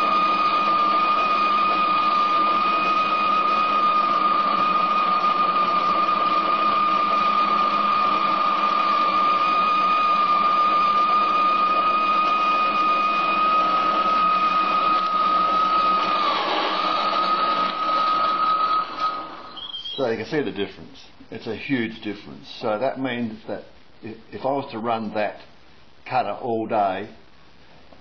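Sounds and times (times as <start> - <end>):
mechanical running noise: 0.0 - 19.7
metal lathe whining: 0.0 - 20.0.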